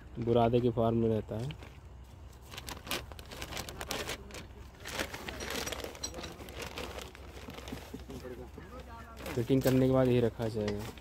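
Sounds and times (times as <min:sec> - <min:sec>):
plastic bag crinkling: 0:01.3 - 0:11.0.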